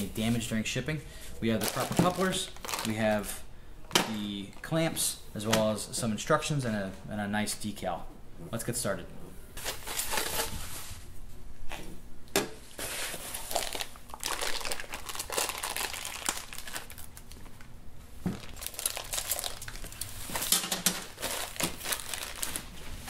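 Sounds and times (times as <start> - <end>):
plastic bags crinkling: 1.5 - 4.8, 12.8 - 17.7, 18.3 - 23.0.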